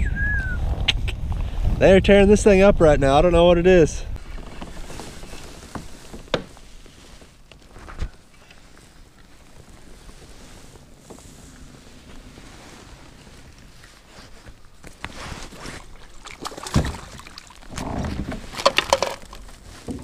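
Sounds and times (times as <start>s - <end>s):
water noise: 8.7s - 20.0s.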